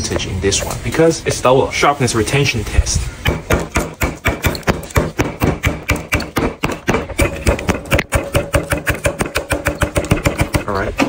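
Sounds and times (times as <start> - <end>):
knife chopping on wooden block: 3.2 - 10.7.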